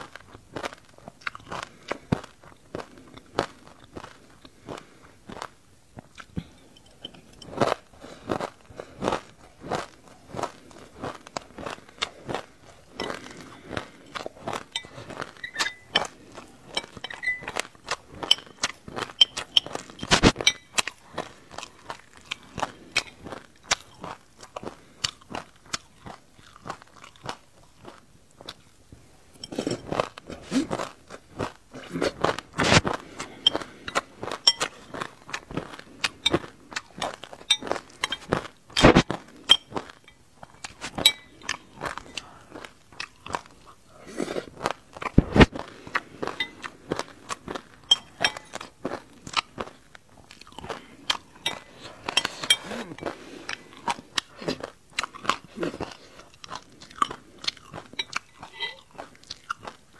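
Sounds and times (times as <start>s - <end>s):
crunching and chewing seeds: 0.0s - 59.9s
metal spoon clinking on glass bowl: 14.7s - 16.1s, 16.7s - 17.6s, 18.2s - 18.6s, 19.2s - 20.8s, 34.4s - 34.7s, 37.5s - 38.3s, 39.5s - 40.2s, 41.0s - 41.4s, 47.9s - 48.6s, 51.4s - 52.7s, 58.0s - 58.7s.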